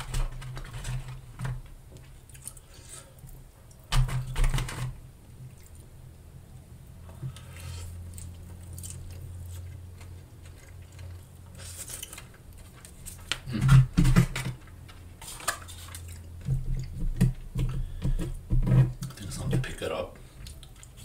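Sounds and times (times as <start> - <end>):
close chewing: 7.3 - 13.5, 15.5 - 17.0, 20.2 - 21.0.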